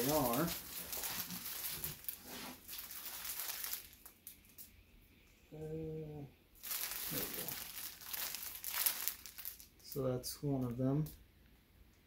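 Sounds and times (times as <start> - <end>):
plastic packaging crinkling: 0.0 - 4.7, 6.6 - 9.9.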